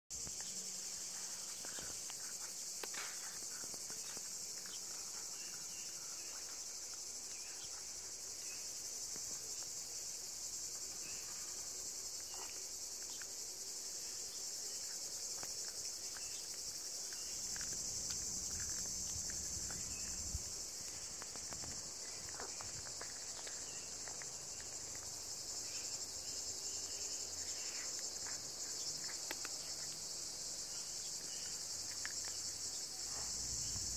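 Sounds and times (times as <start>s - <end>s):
insects chorus: 0.1s - 33.9s
cat chewing bone: 15.4s - 25.2s.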